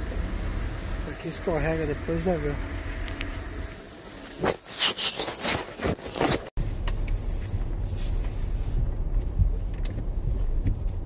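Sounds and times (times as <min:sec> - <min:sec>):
car running low rumble: 0:00.0 - 0:04.4, 0:06.6 - 0:11.0
snow brush scraping ice: 0:04.3 - 0:06.5.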